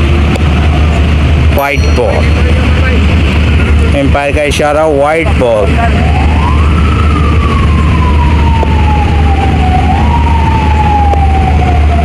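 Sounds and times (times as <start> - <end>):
siren wailing: 5.1 - 12.0.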